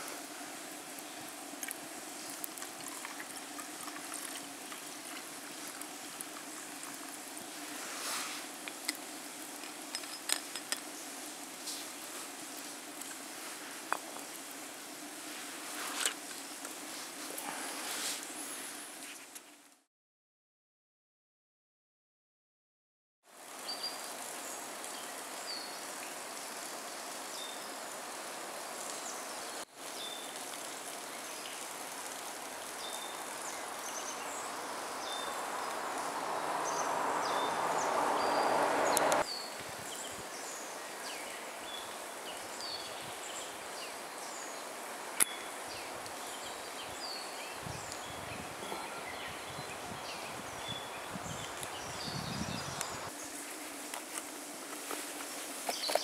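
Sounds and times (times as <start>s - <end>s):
steady hiss: 0.0s - 19.9s, 23.3s - 56.0s
small birds chirping: 28.6s - 53.4s, 55.2s - 56.0s
rushing noise: 33.6s - 39.3s.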